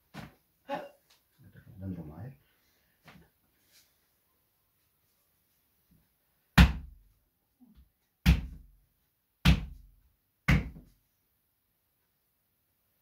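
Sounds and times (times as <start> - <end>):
hands thumping on a back: 6.6 - 7.0, 8.2 - 8.7, 9.4 - 9.9, 10.5 - 10.9.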